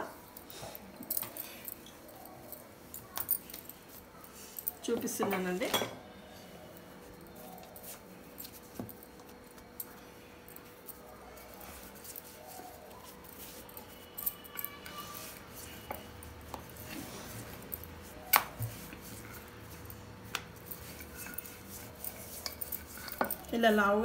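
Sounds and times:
bangles clinking: 0.3s - 5.9s, 6.8s - 24.0s
rolling pin rolling dough: 10.6s - 24.0s.

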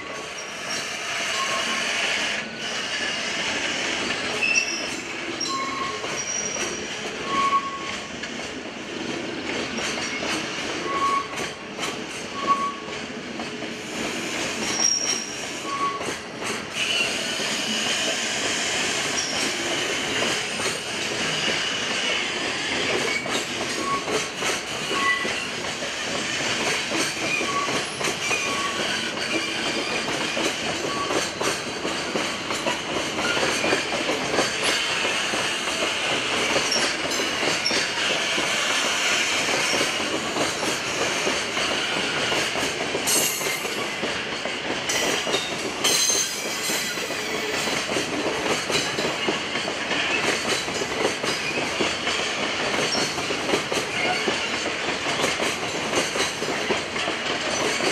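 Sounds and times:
train wheels clattering over rail joints: 0.1s - 57.9s
high-pitched wheel squeals: 0.3s - 1.9s, 4.4s - 8.0s, 14.7s - 16.1s.

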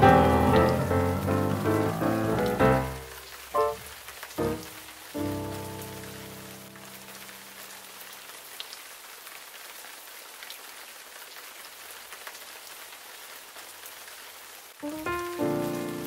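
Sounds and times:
raindrops ticking: 0.0s - 8.8s, 14.8s - 16.0s
steady rain hiss: 0.0s - 16.0s.

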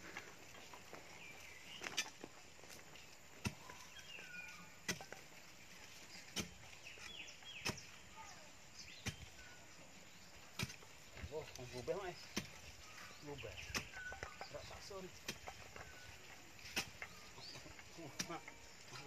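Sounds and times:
digging bar thudding into soil: 3.4s - 3.8s, 4.8s - 5.2s, 6.3s - 6.8s, 7.6s - 7.9s, 10.5s - 10.9s, 16.6s - 17.6s.

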